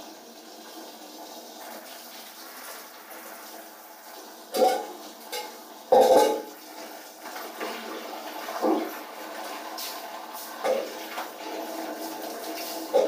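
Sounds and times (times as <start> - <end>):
knocks with water splashing: 4.5 - 6.6, 8.5 - 9.0, 10.6 - 11.4.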